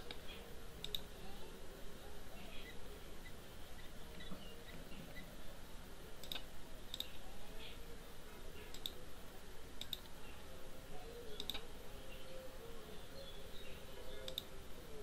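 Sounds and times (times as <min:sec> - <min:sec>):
faint room noise: 0:00.0 - 0:15.0
computer mouse clicks: 0:00.8 - 0:01.1, 0:06.2 - 0:07.2, 0:08.7 - 0:09.0, 0:09.8 - 0:10.2, 0:11.4 - 0:11.6, 0:14.3 - 0:14.5.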